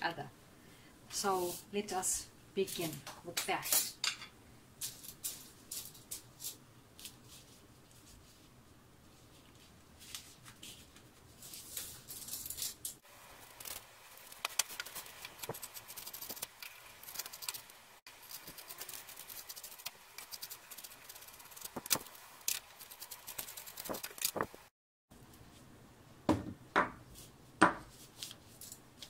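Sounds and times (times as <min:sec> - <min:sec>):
paper rustling: 0:09.1 - 0:24.7.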